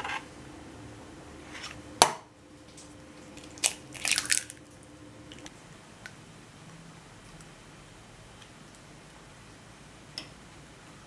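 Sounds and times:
eggshell crunchy crackle: 3.2s - 5.5s.

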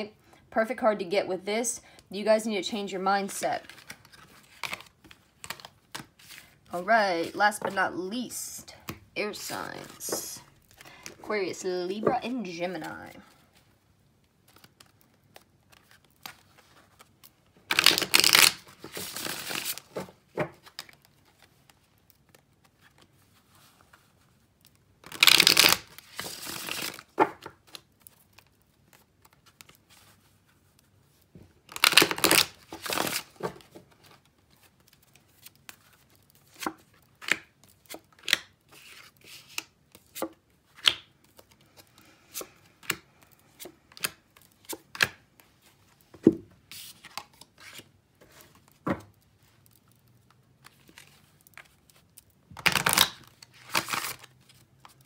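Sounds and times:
cards shuffled by hand: 14.4s - 24.4s, 25.0s - 45.8s, 50.6s - 55.0s.

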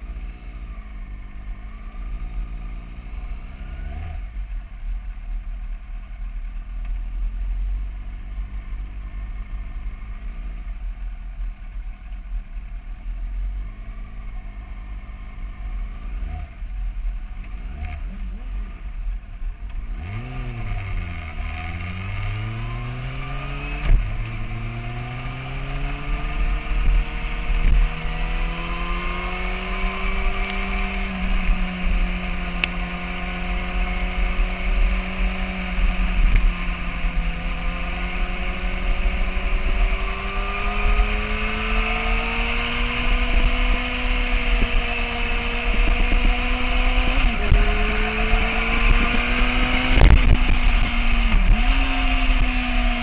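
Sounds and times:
motorcycle engine accelerating: 0.0s - 53.0s
wind rush over microphone: 45.6s - 53.0s.

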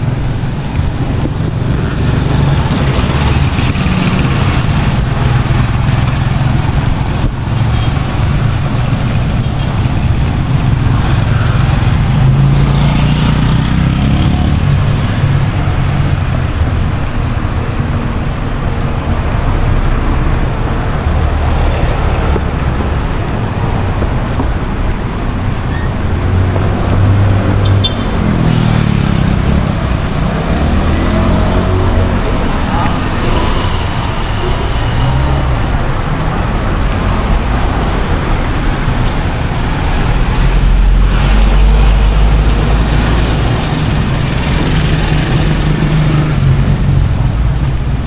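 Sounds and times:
road noise: 0.0s - 48.0s
vehicles passing: 0.0s - 48.0s.

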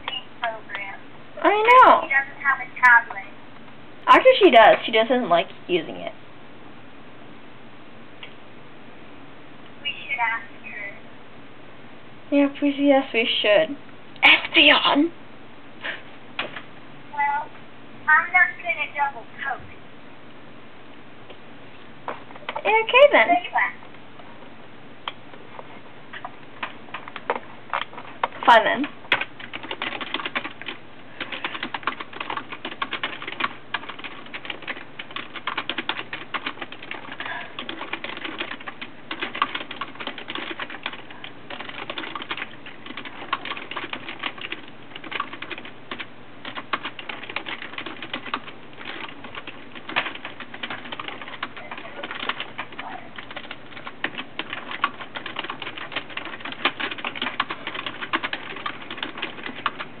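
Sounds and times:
typing on computer keyboard: 26.6s - 59.9s.

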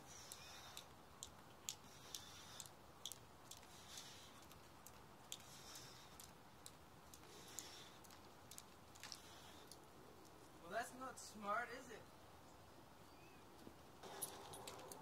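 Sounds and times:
jump rope ticking on stone: 0.0s - 9.8s.

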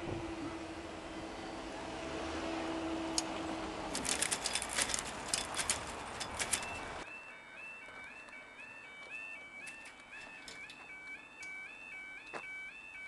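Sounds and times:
sharp clicks and rattles: 3.9s - 7.0s.

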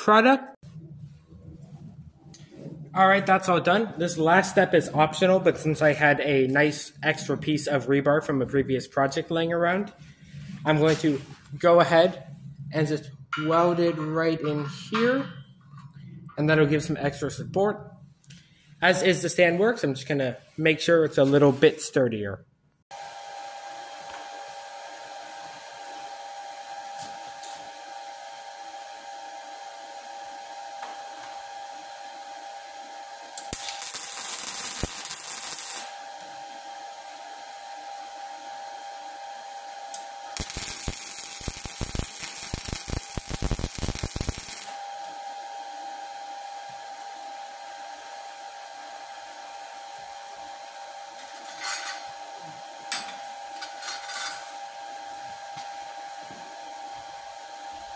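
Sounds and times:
steady hum: 0.1s - 21.0s, 24.3s - 57.9s
welding arc crackling: 33.4s - 36.4s, 39.9s - 45.2s.

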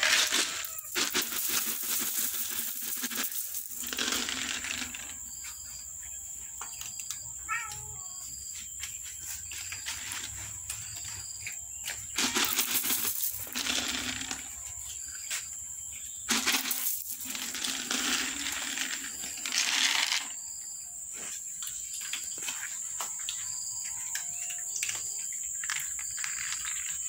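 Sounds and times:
dry pellets pouring onto tile floor: 0.0s - 5.1s, 12.2s - 14.4s, 16.3s - 20.3s.

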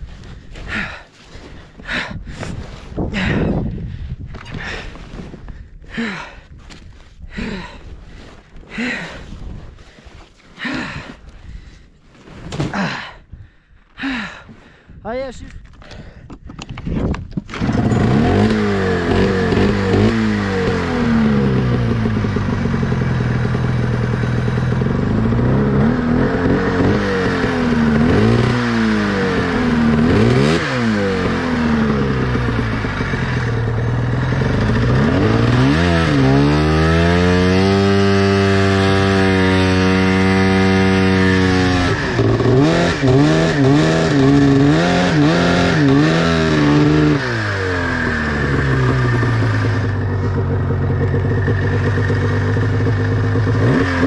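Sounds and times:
snowmobile engine revving: 17.5s - 54.0s.

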